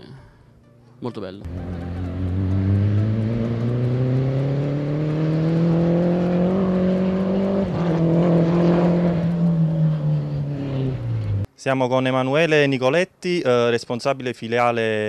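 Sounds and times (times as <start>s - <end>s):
race car engine accelerating: 1.4s - 11.5s.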